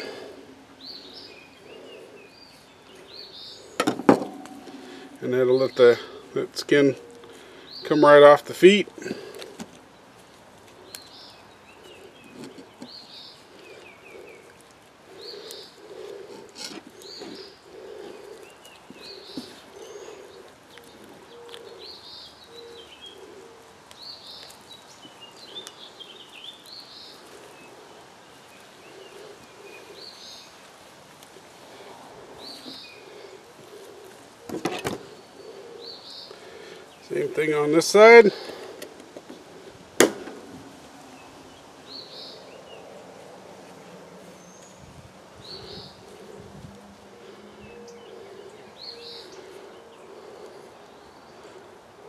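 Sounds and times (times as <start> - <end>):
lower repeated bird call: 0.0 - 8.2, 11.0 - 30.6, 45.4 - 52.0
birds singing: 0.0 - 52.0.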